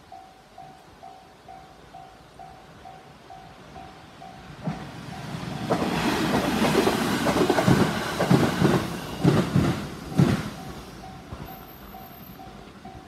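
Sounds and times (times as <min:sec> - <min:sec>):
crossing warning bell ringing: 0:00.0 - 0:06.1, 0:08.9 - 0:13.0
train rushing past: 0:00.6 - 0:13.0.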